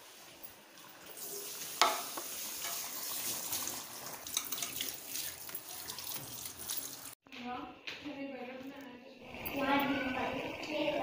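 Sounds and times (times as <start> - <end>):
meat sizzling in a pot: 1.1 - 7.1
metal spoon stirring in a pot: 1.8 - 6.9.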